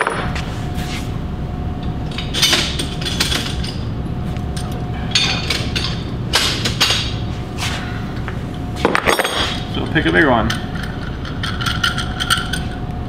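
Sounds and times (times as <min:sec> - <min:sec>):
low hum of shop machinery: 0:00.0 - 0:13.0
metal clamps clanking: 0:02.1 - 0:03.8, 0:04.6 - 0:07.2.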